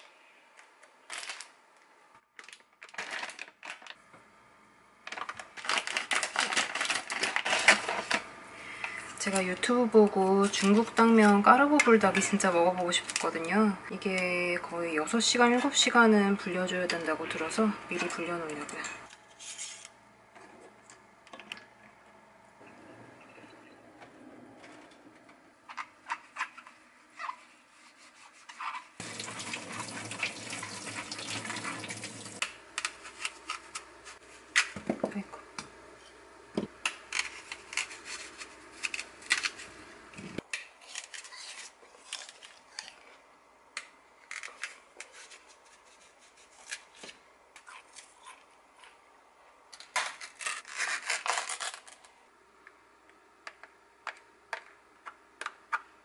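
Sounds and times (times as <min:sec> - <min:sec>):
apple being rubbed: 0:27.1 - 0:29.0, 0:37.3 - 0:39.7, 0:45.1 - 0:46.8
running tap water: 0:29.0 - 0:32.4.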